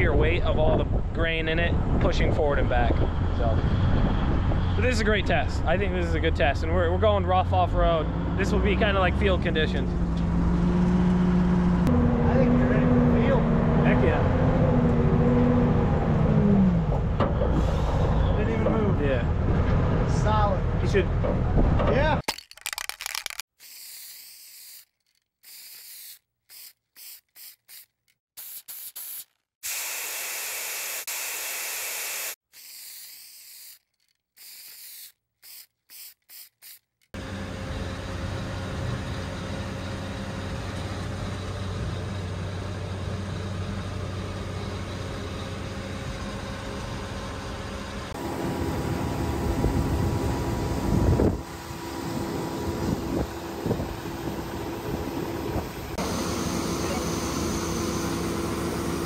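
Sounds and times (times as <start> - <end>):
diesel truck engine drone: 2.6 - 21.8, 37.2 - 59.0.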